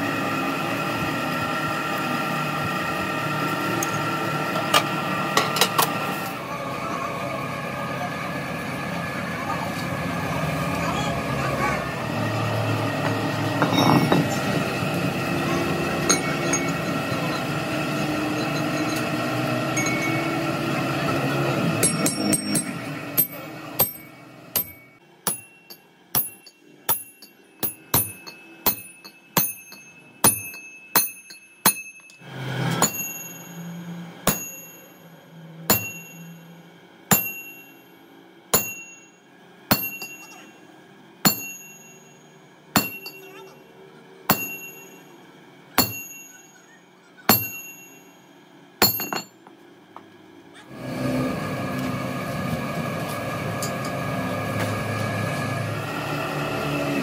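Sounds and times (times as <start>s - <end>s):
steady machine drone: 0.0s - 57.0s
hammer striking steel bar: 19.8s - 20.4s, 21.8s - 35.0s, 35.7s - 40.5s, 41.2s - 42.2s, 42.8s - 43.6s, 44.3s - 45.1s, 45.8s - 46.6s, 47.3s - 48.2s, 48.8s - 49.4s.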